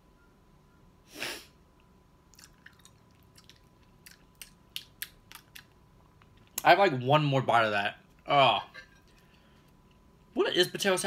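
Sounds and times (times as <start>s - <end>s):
person chewing food: 2.3s - 6.6s
wet clicking mouth sounds: 2.3s - 6.7s.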